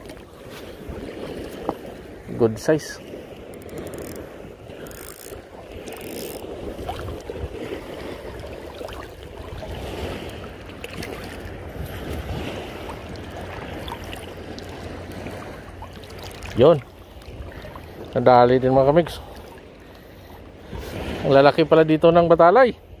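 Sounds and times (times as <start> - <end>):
wind on microphone: 0.0 - 15.7, 16.4 - 18.2
seawater washing on shore: 0.0 - 22.7.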